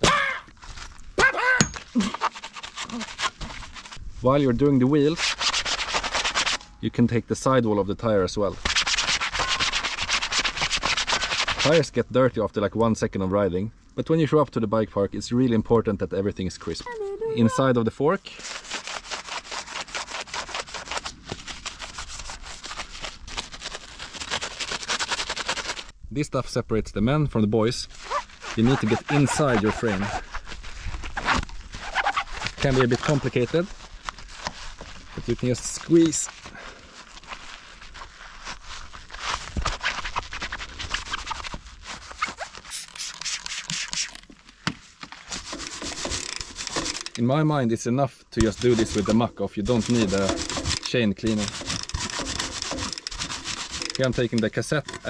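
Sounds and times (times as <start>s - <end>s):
sponge scrubbing wet metal: 2.0s - 4.0s, 4.8s - 6.6s, 8.6s - 11.9s, 18.3s - 25.9s, 27.9s - 44.2s, 45.2s - 47.1s, 48.4s - 55.0s.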